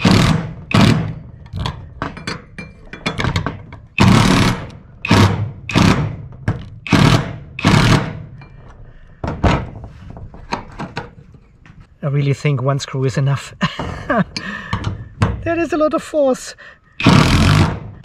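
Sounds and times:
power driver driving screw into metal: 0.0 - 1.8, 4.0 - 8.3, 17.0 - 18.0.

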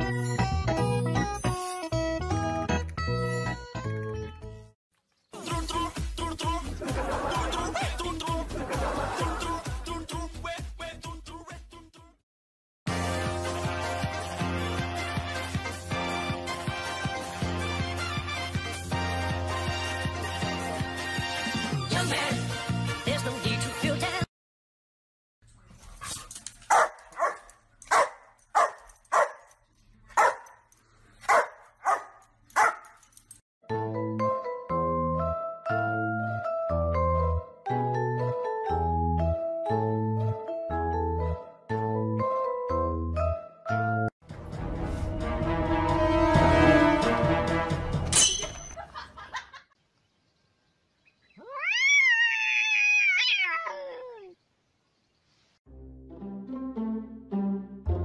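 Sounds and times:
music: 0.0 - 12.2, 12.9 - 24.3, 33.6 - 48.2, 55.7 - 58.0
dog barking: 26.7 - 29.5, 30.1 - 30.6, 31.2 - 33.0
cat meowing: 51.4 - 54.4.

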